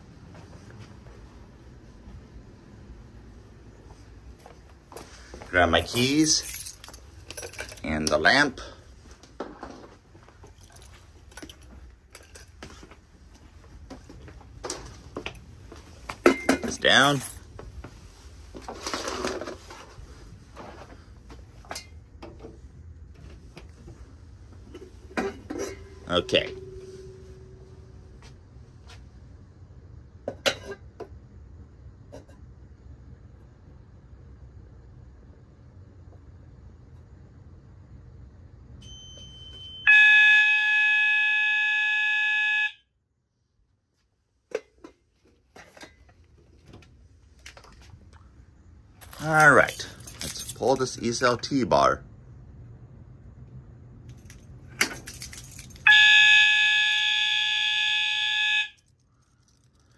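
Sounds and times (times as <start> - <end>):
short high beep: 38.8 - 42.8
fire alarm horn tone: 38.8 - 43.0, 55.8 - 59.0.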